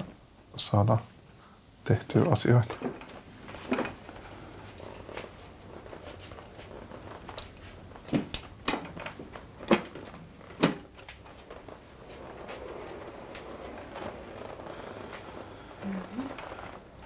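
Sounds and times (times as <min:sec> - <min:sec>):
patient hoist knocks and clunks: 0:02.1 - 0:04.2, 0:05.9 - 0:11.5.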